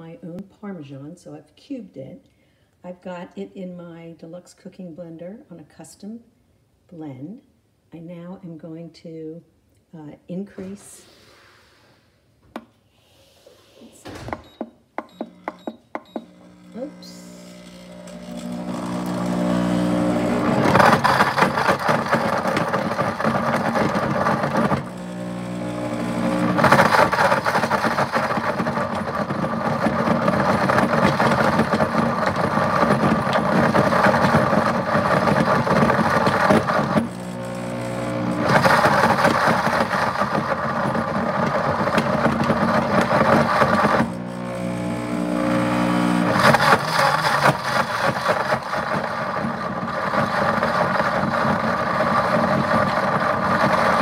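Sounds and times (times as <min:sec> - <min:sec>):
blender motor running: 0:15.0 - 0:54.0.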